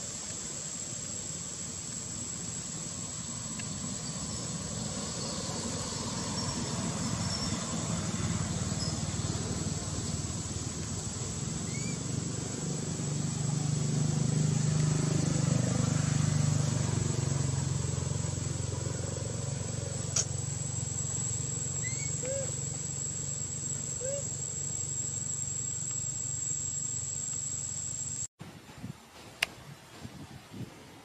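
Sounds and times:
vehicle engine hum: 2.4s - 28.3s
faint chirps: 11.6s - 12.0s, 20.1s - 28.3s.

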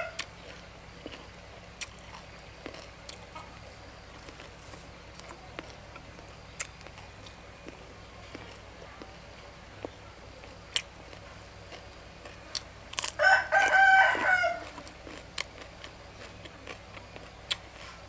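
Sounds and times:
rooster crowing: 0.0s - 0.3s, 13.0s - 14.9s
small clicks of eating: 0.2s - 9.2s, 14.6s - 18.0s.

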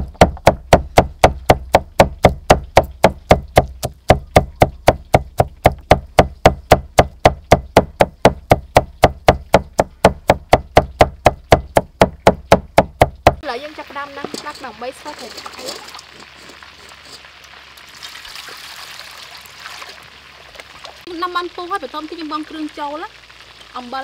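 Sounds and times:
cleaver knocking on wooden block: 0.1s - 13.4s.

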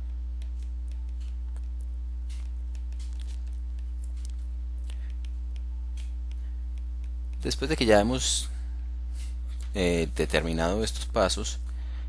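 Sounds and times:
stylus scratching on tablet screen: 0.0s - 8.0s
low electrical hum: 0.0s - 12.0s.

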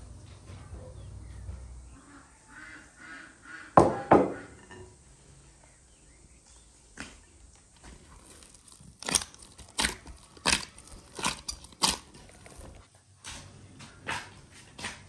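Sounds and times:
dough kneaded in glass bowl: 7.9s - 12.9s.

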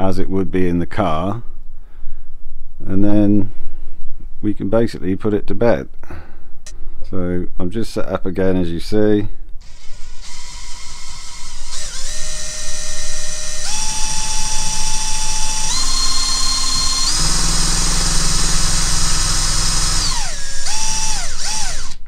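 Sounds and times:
electric drill whining: 9.6s - 22.0s.

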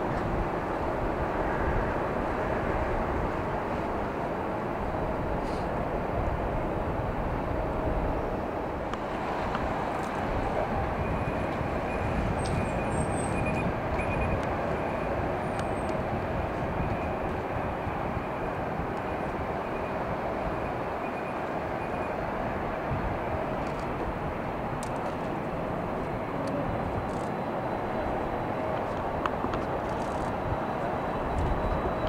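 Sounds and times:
jet engines rumbling: 0.0s - 32.0s
faint high whine: 7.5s - 32.0s.

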